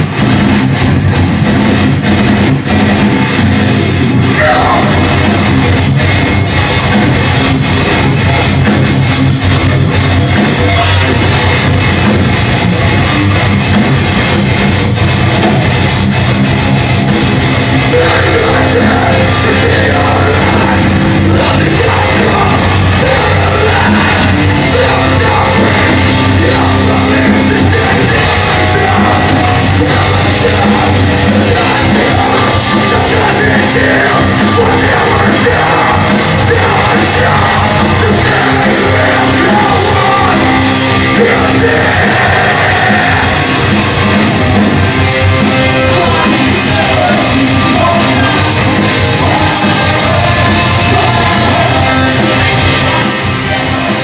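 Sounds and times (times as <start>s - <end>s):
heavy metal band playing live: 0.0s - 54.0s
person singing: 4.3s - 7.6s, 17.6s - 44.2s, 45.0s - 54.0s.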